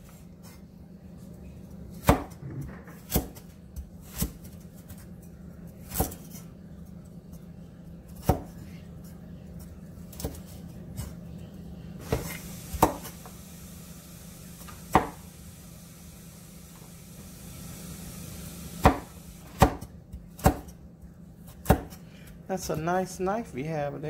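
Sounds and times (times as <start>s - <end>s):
knife chopping on wooden board: 2.0s - 5.0s, 5.8s - 6.4s, 8.1s - 8.6s, 12.0s - 13.1s, 14.9s - 15.2s, 18.8s - 20.8s, 21.5s - 22.0s.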